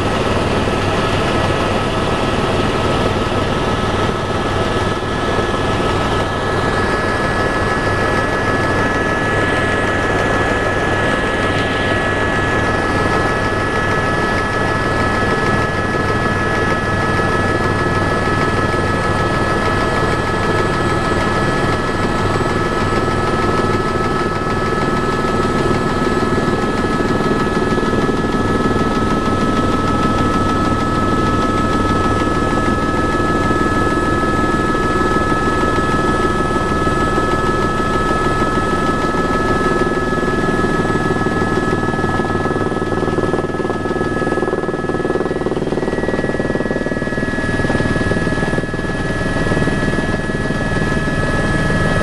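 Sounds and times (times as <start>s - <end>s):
helicopter rotor beat: 0.0s - 52.0s
helicopter turbine whine: 0.0s - 52.0s.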